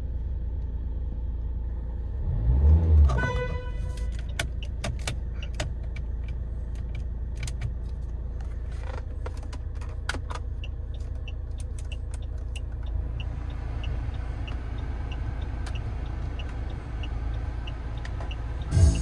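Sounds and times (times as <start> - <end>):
car engine idling: 3.2 - 19.0
light regular ticking: 9.5 - 18.7.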